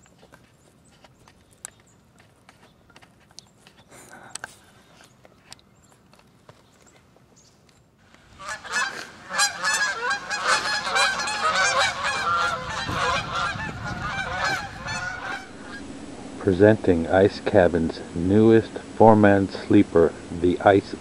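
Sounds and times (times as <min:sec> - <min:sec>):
geese honking: 0:08.1 - 0:15.9.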